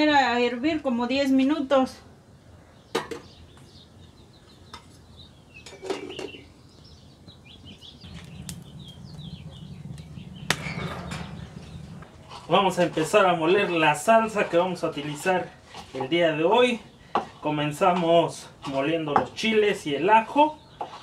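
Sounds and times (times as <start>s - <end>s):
small birds chirping: 2.3s - 21.0s
low steady hum: 8.0s - 13.8s.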